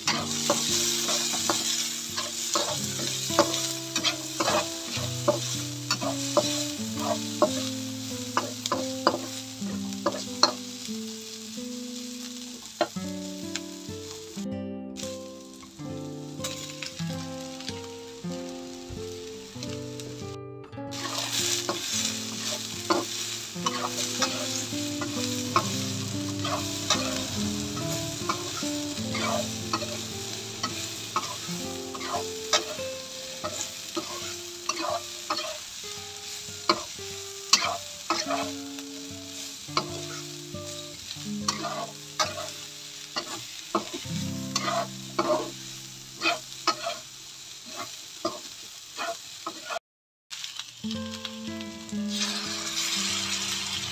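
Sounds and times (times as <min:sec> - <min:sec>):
spatula scraping and clacking on pan: 0:00.0 - 0:10.7, 0:20.9 - 0:35.6, 0:36.6 - 0:36.9, 0:37.5 - 0:38.6, 0:39.7 - 0:40.3, 0:41.4 - 0:42.6, 0:43.2 - 0:45.6, 0:46.2 - 0:47.0, 0:47.7 - 0:49.8
food sizzling in a hot pan: 0:00.0 - 0:53.9.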